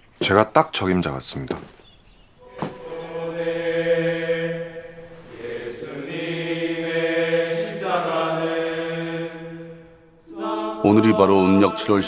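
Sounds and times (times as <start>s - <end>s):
male choir singing a hymn: 2.4s - 12.0s.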